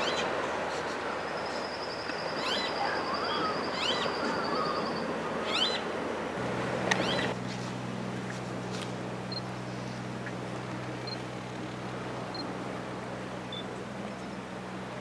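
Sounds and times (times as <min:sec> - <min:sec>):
birds chirping: 0:00.0 - 0:05.9
surf washing: 0:00.0 - 0:15.0
low steady hum: 0:06.3 - 0:15.0.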